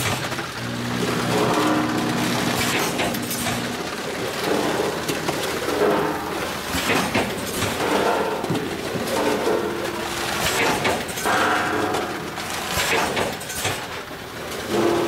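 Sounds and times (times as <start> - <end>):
machine clattering: 0.0 - 15.0
machine humming: 0.0 - 15.0.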